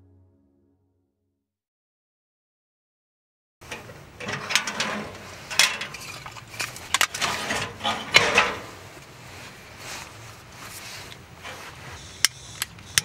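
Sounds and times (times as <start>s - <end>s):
cookware clinking and scraping: 3.6s - 8.8s.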